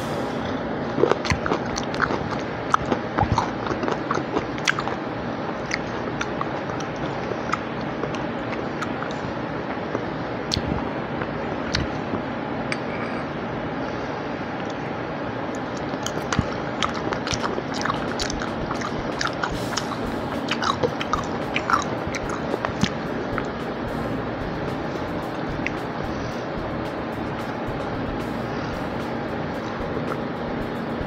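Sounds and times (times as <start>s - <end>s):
steady background hiss: 0.0s - 31.0s
wet chewing and lip smacks: 0.9s - 5.0s, 15.7s - 23.6s.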